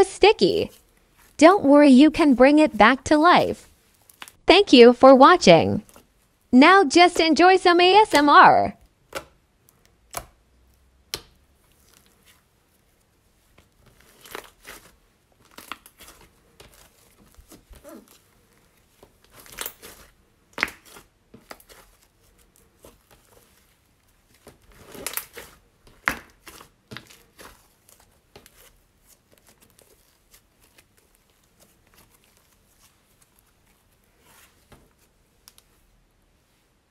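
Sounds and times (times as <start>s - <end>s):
slime sticky crackles: 11.1s - 35.8s.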